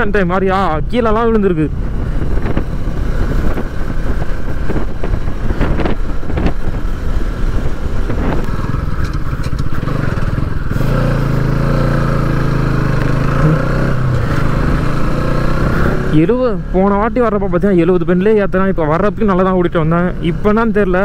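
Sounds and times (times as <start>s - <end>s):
wind buffeting: 0.0s - 16.3s
motorcycle engine running: 1.7s - 17.6s.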